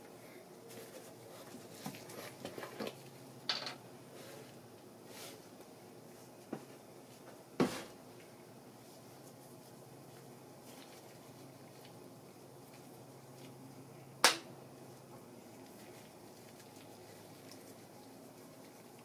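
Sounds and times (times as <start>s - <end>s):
faint low hum: 0.0s - 19.0s.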